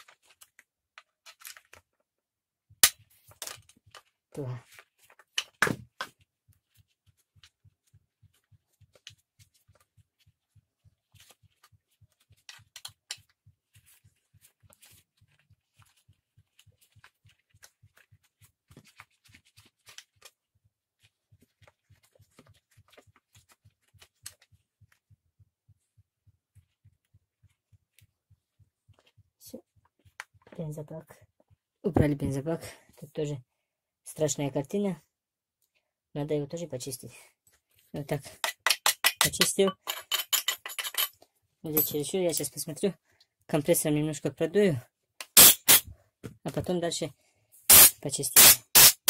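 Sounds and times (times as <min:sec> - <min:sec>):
screwdriver clicks and rustles: 0:47.7 - 0:49.0.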